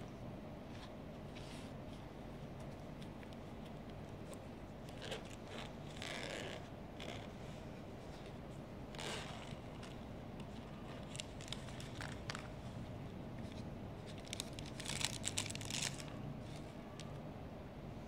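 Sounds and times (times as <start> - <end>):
plastic packaging crinkling: 8.9 - 12.6, 13.5 - 17.1.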